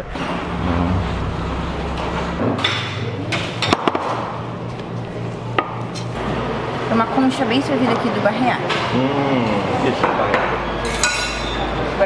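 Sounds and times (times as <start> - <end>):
background hum: 0.0 - 8.2
plates clinking on table: 10.0 - 11.6.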